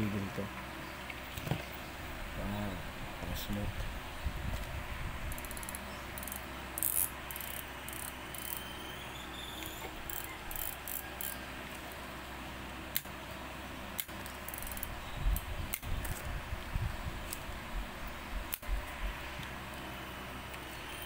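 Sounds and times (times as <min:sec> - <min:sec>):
fishing reel clicking: 0:05.3 - 0:08.7, 0:09.6 - 0:11.4, 0:14.5 - 0:14.9.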